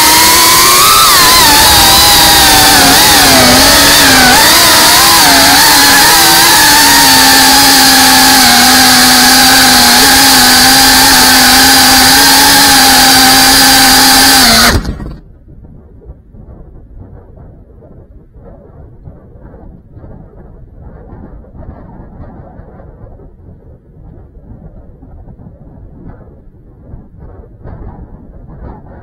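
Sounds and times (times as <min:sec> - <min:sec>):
drone motors whining: 0:00.0 - 0:15.2.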